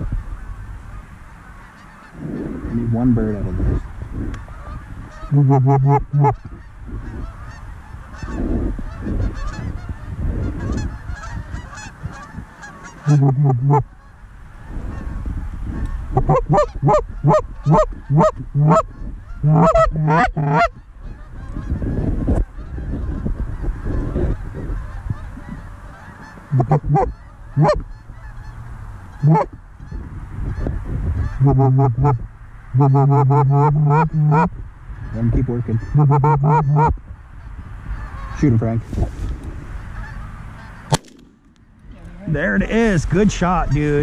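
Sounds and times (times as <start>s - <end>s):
goose honking: 0.0s - 41.0s
goose clucks: 3.7s - 14.1s, 15.8s - 38.5s, 39.8s - 41.0s.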